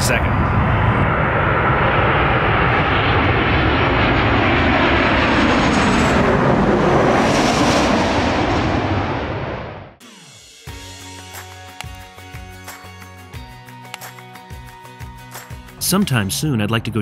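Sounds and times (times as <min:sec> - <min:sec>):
jet engines passing overhead: 0:00.0 - 0:10.1.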